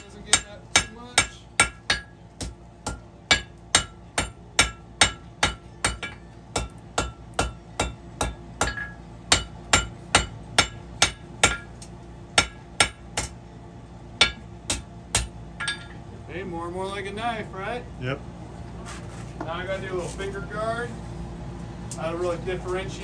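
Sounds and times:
hammer striking steel on anvil: 0.0 - 13.4, 14.2 - 16.0.

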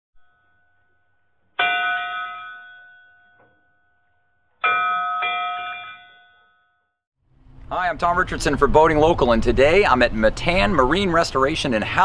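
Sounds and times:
bell-like chime ringing: 0.2 - 7.0.

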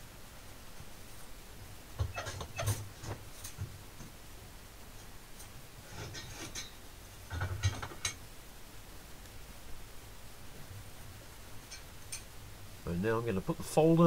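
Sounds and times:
faint low hum: 0.0 - 14.0
metal clicks and knocks: 6.1 - 8.2.

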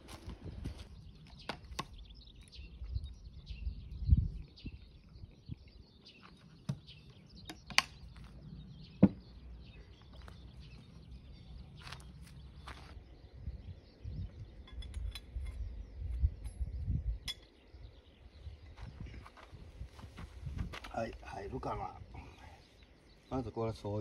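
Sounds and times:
birds chirping: 0.0 - 24.0.

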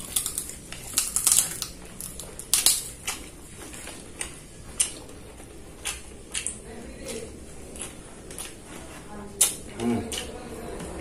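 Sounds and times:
chewing with crunches: 0.0 - 11.0.

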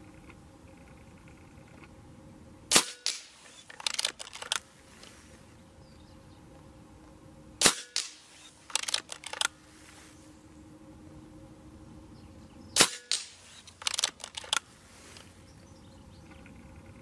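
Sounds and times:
air rifle shots: 2.7 - 4.7, 7.6 - 9.6, 12.8 - 14.6
light clicks: 13.1 - 14.6.

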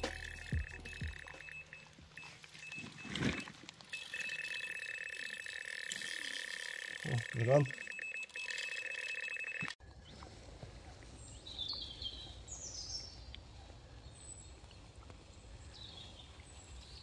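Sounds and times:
high bird chirps: 0.0 - 3.0
bite alarm stuttering tone: 0.0 - 9.8.

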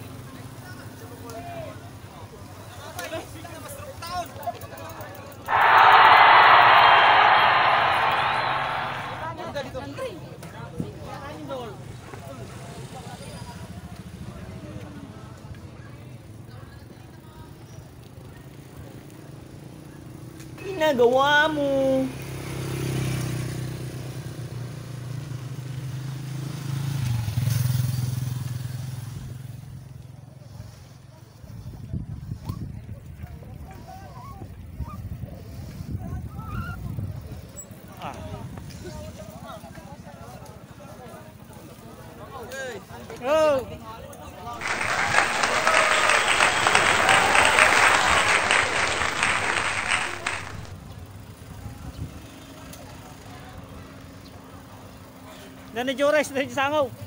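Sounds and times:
people applauding: 5.5 - 9.3, 44.6 - 50.7.

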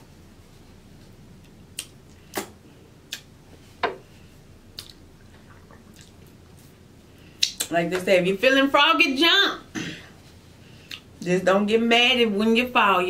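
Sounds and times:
wet mouth pops and smacks: 1.7 - 3.3, 4.7 - 5.0, 7.4 - 7.7.

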